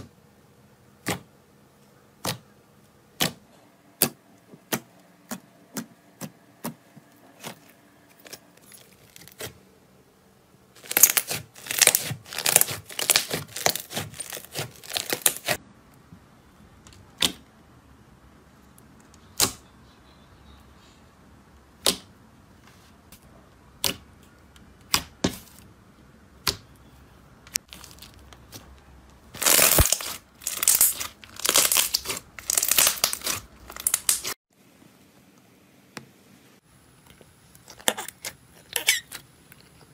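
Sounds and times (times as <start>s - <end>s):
slime popping and crackling: 10.8s - 15.6s, 29.3s - 34.4s.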